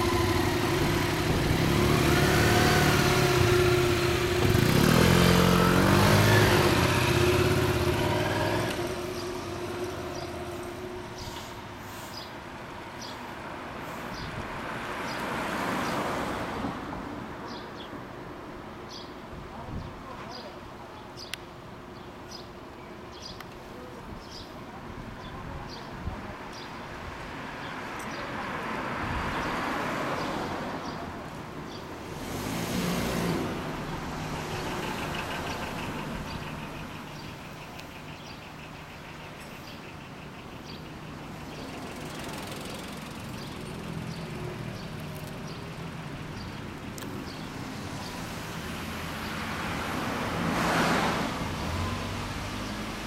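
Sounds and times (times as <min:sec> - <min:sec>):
engines idling: 0:00.0 - 0:14.1, 0:32.4 - 0:47.8
vehicles passing by: 0:00.0 - 0:53.0.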